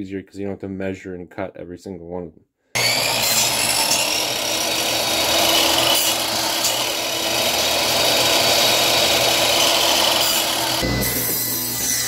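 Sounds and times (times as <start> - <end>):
miter saw cutting wood: 2.8 - 12.0.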